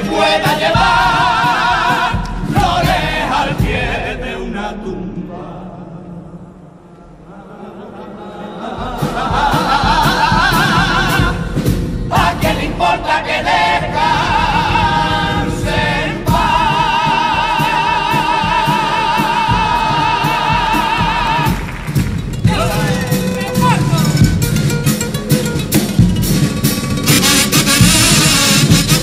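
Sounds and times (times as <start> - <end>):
drum keeping steady beat: 0.0 - 4.1, 8.8 - 29.0
male chorus singing in harmony: 0.0 - 23.0.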